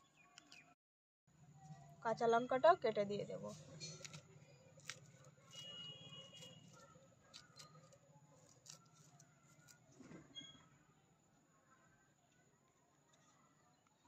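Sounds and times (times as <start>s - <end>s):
knife slicing chillies: 3.4s - 9.9s.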